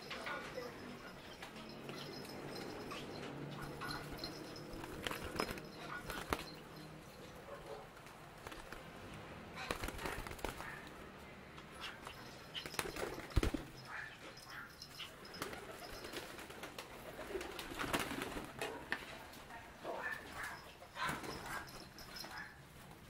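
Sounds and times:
pigeons cooing: 0:00.0 - 0:06.8
wings flapping: 0:01.4 - 0:06.8, 0:08.0 - 0:11.0, 0:11.8 - 0:14.0, 0:15.0 - 0:18.8.

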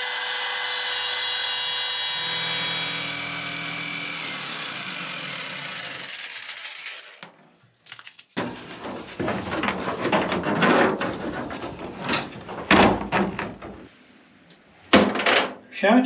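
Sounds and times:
rustling scraping and knocking: 0:08.4 - 0:13.9.

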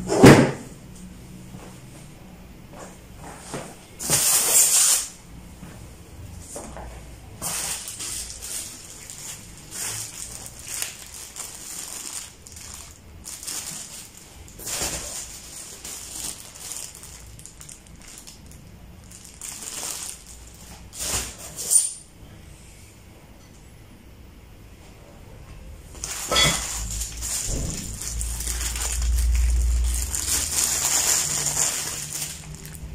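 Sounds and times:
plastic bags crinkling: 0:07.4 - 0:22.0, 0:25.9 - 0:32.9.

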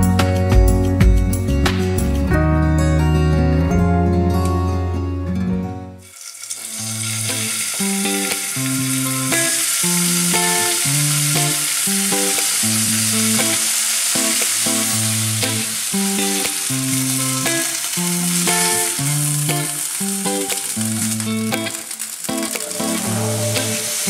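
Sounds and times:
music with picked notes and bass: 0:00.0 - 0:06.0, 0:07.1 - 0:24.0
food sizzling in frying pan: 0:06.0 - 0:24.0.

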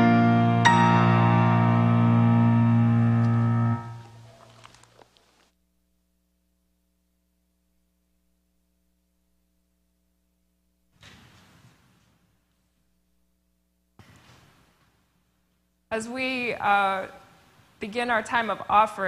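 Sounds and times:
choir and accompaniment chord: 0:00.0 - 0:04.2
faint steady hum: 0:00.0 - 0:11.0, 0:12.0 - 0:19.0.

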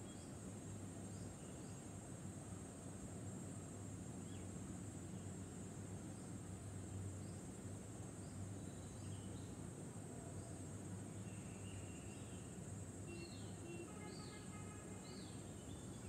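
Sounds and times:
faint bird chirps: 0:13.1 - 0:16.0.

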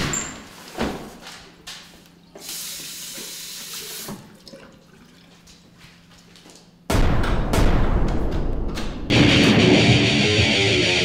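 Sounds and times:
water running from tap: 0:02.5 - 0:05.5
music: 0:09.1 - 0:11.0.

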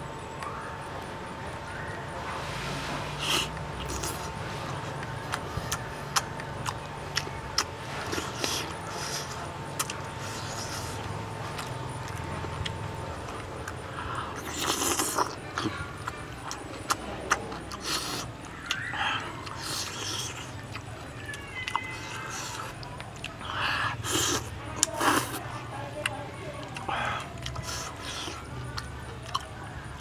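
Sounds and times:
steady low hum: 0:00.0 - 0:21.6.

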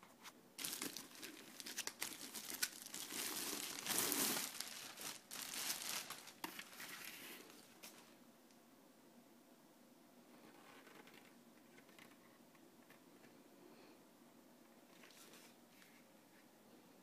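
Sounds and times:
plastic bag crinkling: 0:00.6 - 0:08.0.

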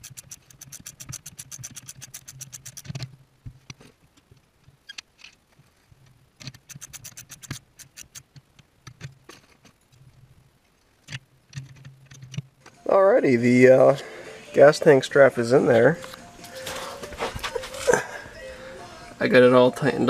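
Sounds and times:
socket ratchet clicking: 0:00.0 - 0:03.0, 0:06.4 - 0:08.3.

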